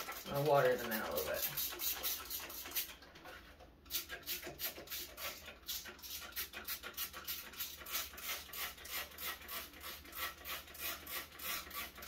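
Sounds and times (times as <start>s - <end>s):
spray bottle hissing sprays: 1.3s - 2.9s, 3.9s - 11.9s.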